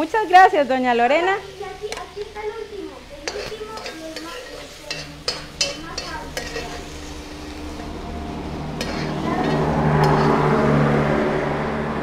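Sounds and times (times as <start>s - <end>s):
meat sizzling in hot oil: 0.0s - 10.4s
metal spoon scraping a wok: 3.2s - 10.6s.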